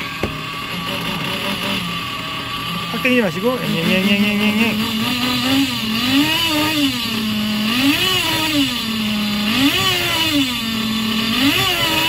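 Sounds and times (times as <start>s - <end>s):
engine throttle blips: 2.6s - 10.6s.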